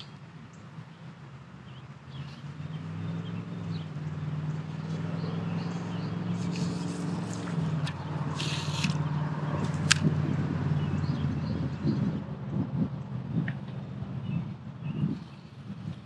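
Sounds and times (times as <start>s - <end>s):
fishing rod swishing: 5.8s - 10.2s.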